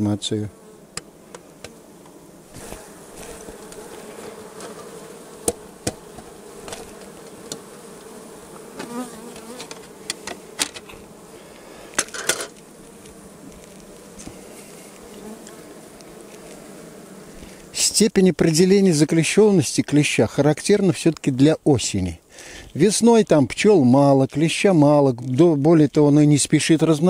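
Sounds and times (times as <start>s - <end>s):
honeybees buzzing: 0.0s - 23.4s
sharp knocks: 5.4s - 6.9s.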